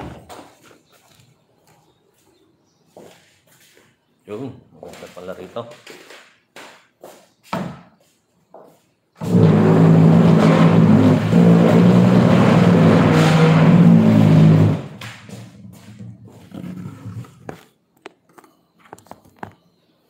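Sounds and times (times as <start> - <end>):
loud motor drone: 9.2 - 15.0.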